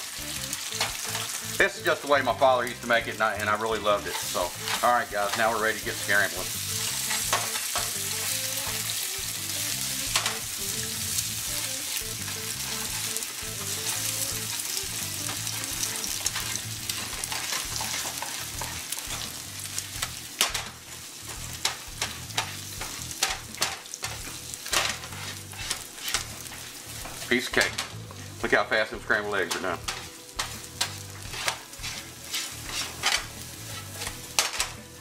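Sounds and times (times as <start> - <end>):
eggs sizzling in grease: 0.0 - 35.0
spatula tapping and scraping pan: 7.0 - 8.8, 15.3 - 19.4, 20.0 - 28.0, 29.3 - 34.8.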